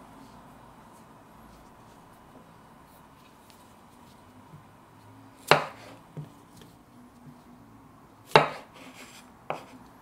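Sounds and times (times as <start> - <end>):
knife chopping on wooden board: 5.4 - 6.4, 8.3 - 9.7.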